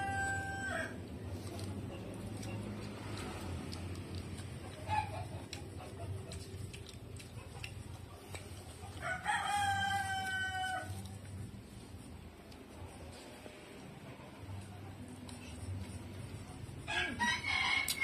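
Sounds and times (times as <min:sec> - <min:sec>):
rooster crowing: 0:00.0 - 0:01.0, 0:09.0 - 0:11.0, 0:16.9 - 0:18.0.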